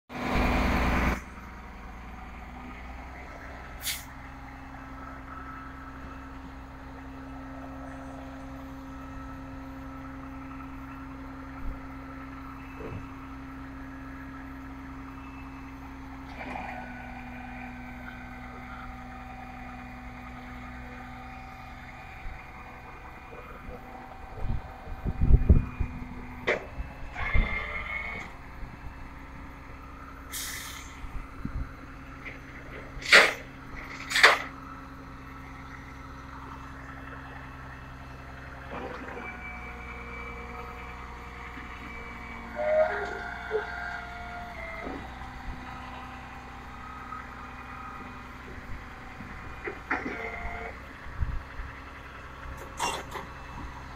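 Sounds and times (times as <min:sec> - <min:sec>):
truck engine idling: 0:00.1 - 0:53.9
air brakes hissing: 0:03.8 - 0:04.2, 0:30.3 - 0:31.0.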